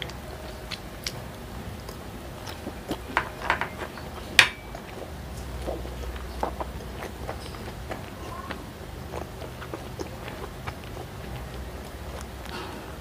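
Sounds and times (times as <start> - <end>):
wet chewing: 0.0 - 13.0
cutlery clinking on plate: 3.1 - 4.7
fork tapping sauce dish: 3.2 - 4.8.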